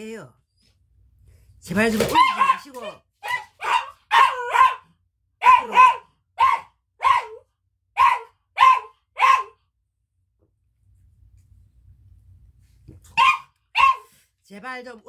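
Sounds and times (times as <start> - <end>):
dog barking: 2.1 - 9.6, 13.1 - 14.2.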